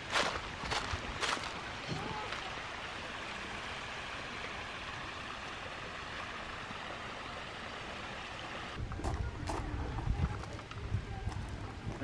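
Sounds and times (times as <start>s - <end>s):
stream trickling over stones: 0.0s - 12.0s.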